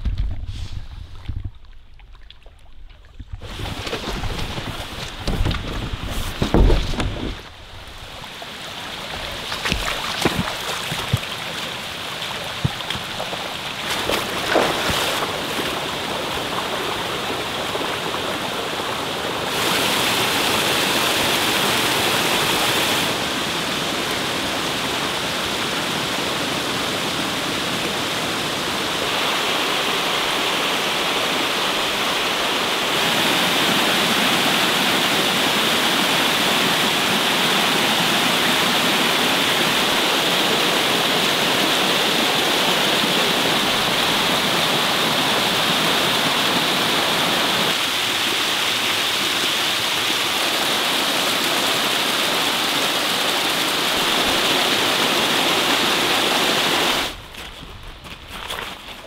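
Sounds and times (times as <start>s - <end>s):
creek cascading over rock: 0.0s - 57.2s
wind gusting on microphone: 3.2s - 8.2s.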